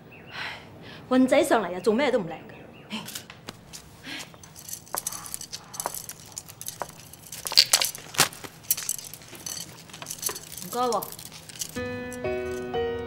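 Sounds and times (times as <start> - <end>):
bamboo sticks clacking in cylinder: 3.5 - 12.6.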